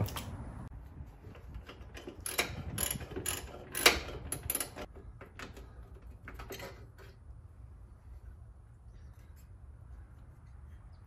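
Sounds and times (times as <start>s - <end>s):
hand ratchet clicking: 1.7s - 5.5s.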